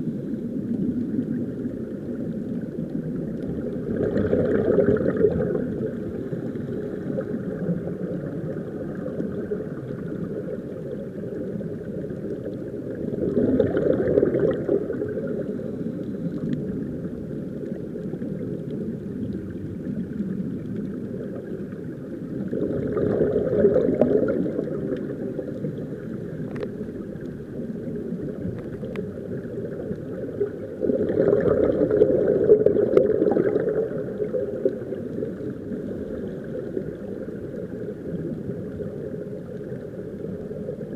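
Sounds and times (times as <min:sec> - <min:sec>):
underwater rumble and bubbling: 0:00.0 - 0:40.9.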